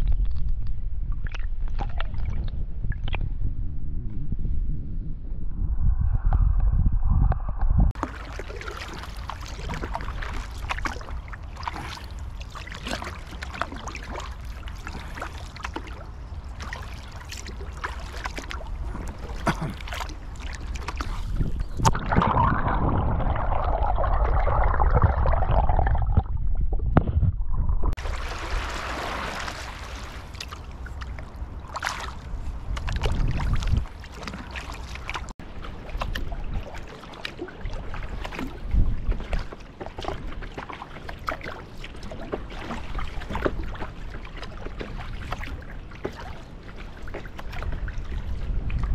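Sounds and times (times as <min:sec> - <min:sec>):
paddle strokes splashing: 0:08.0 - 0:22.2, 0:28.0 - 0:48.9
water washing against bow: 0:08.0 - 0:25.6, 0:27.9 - 0:48.9.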